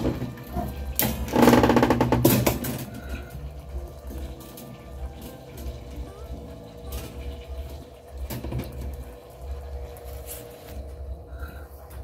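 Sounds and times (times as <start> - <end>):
faint steady hum: 2.6 - 12.0.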